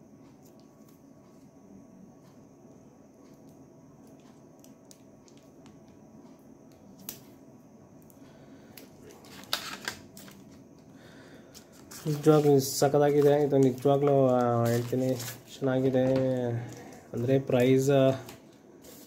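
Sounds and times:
paper rustling: 11.6 - 17.0.

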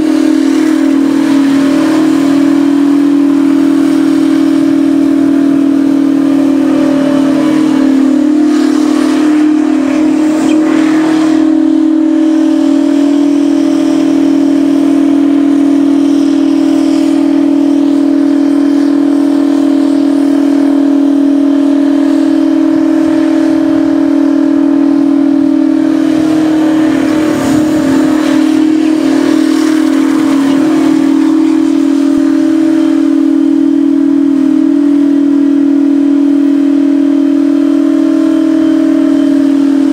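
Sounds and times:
engine whistle-like high revs: 0.0 - 39.9
spinning tyres hissing: 0.0 - 39.9.

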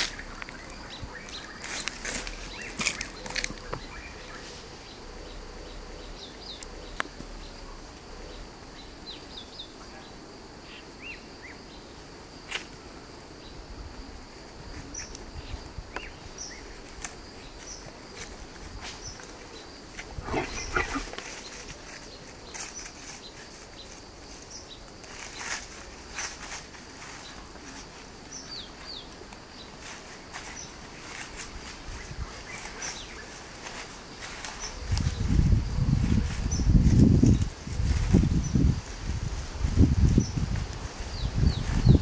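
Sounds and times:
birds chirping: 0.0 - 12.0, 14.9 - 26.4, 27.1 - 37.5.

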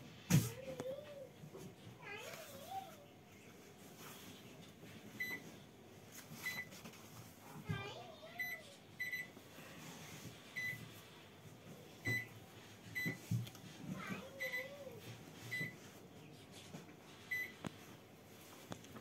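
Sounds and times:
microwave button beeps: 5.2 - 5.4, 8.4 - 9.4.

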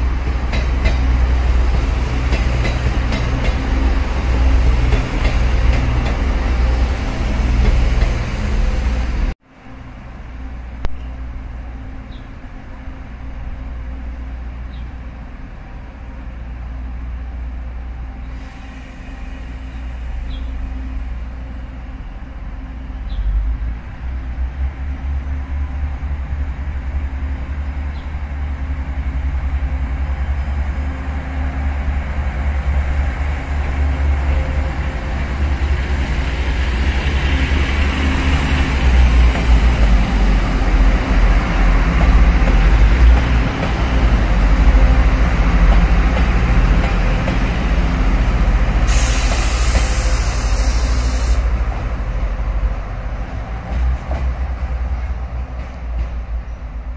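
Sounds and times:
diesel railcar engines rumbling: 0.0 - 56.9
sharp hiss: 48.8 - 51.8.

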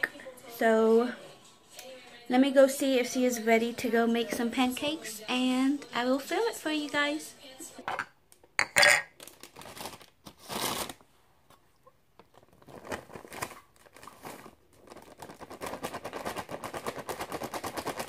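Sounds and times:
plastic bag crinkling: 9.1 - 11.1, 12.2 - 18.0.

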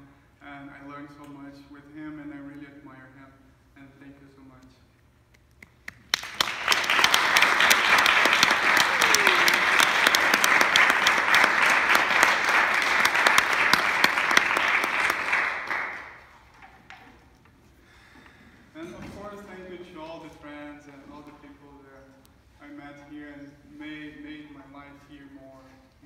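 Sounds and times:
audience applauding: 5.9 - 16.6.

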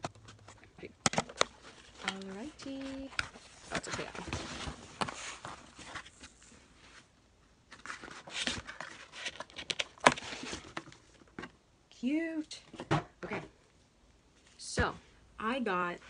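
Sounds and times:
cardboard and paper rustling: 0.0 - 7.1, 7.7 - 11.5.

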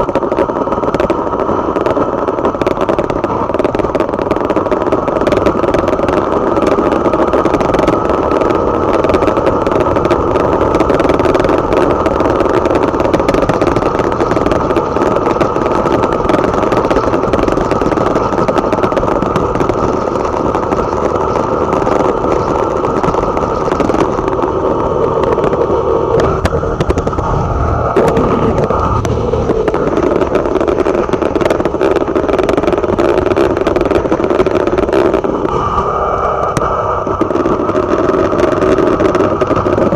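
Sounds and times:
motorcycle engine running: 0.0 - 39.9
road noise: 0.0 - 39.9
wind noise: 0.0 - 39.9.

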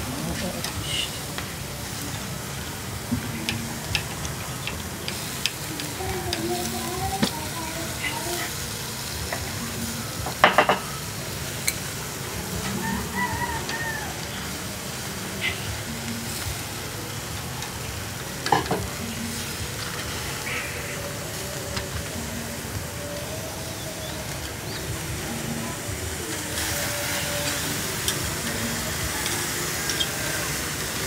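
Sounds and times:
sausages sizzling on grill: 0.0 - 31.0
metal tongs clicking on grate: 11.6 - 11.9, 26.6 - 30.1.

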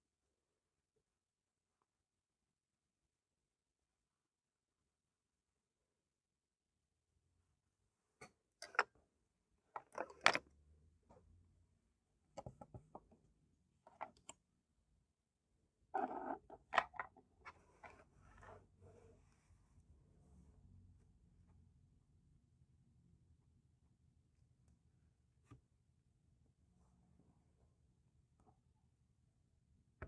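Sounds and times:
sketchbook taps and knocks: 12.4 - 13.1
sketchbook rustling scrape: 17.4 - 19.8.

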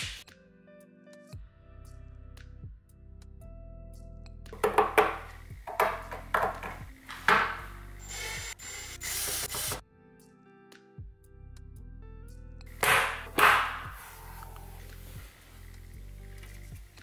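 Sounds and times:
background music: 0.0 - 17.0
cordless drill driving screws: 8.0 - 9.8.

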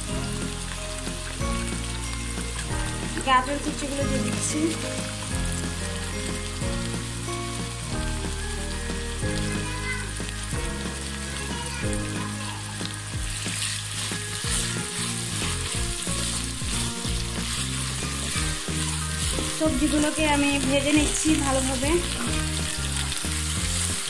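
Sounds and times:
food sizzling in hot oil: 0.0 - 24.0.

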